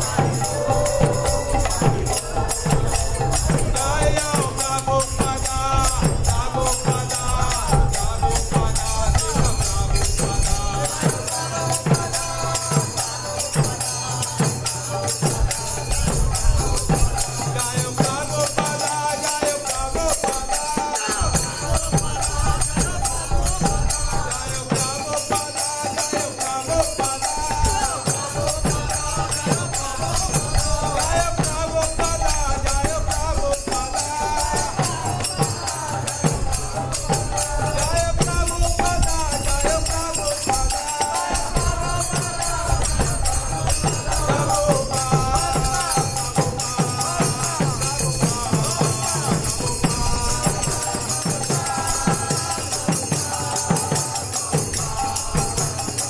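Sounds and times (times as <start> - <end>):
group chanting: 0.0 - 5.4, 8.9 - 38.0, 39.2 - 56.0
drum beating: 0.0 - 56.0
hand cymbals clashing: 0.0 - 56.0.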